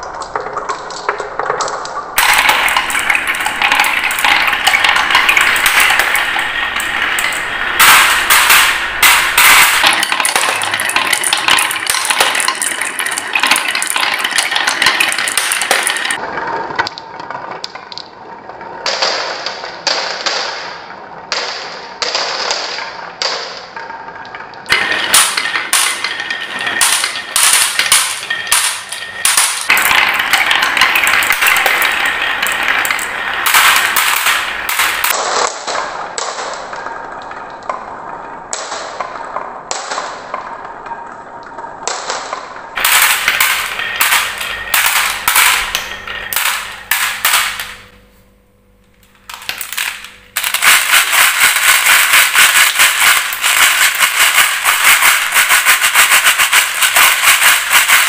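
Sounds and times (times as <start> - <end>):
marbles rattling in plastic truck: 0.0 - 16.2, 24.7 - 35.6, 42.8 - 47.9, 49.2 - 58.0
marbles clattering on wooden tracks: 0.0 - 48.1, 49.0 - 58.0.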